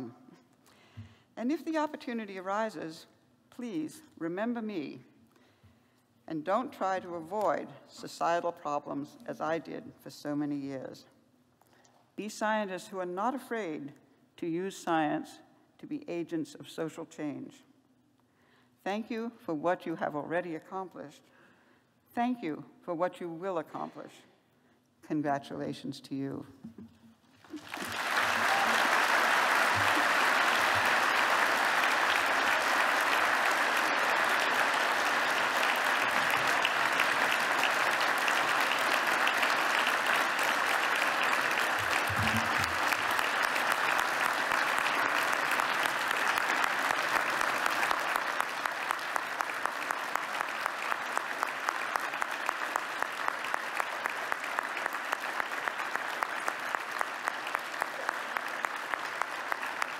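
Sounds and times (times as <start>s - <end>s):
audience applauding: 27.4s - 59.9s
rhythmic clapping: 27.5s - 59.9s.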